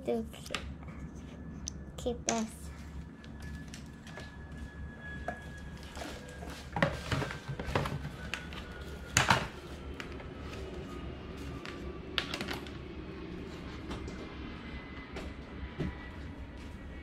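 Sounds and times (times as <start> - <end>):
faint steady hum: 0.0 - 17.0
cardboard box and cables clattering: 5.8 - 8.5.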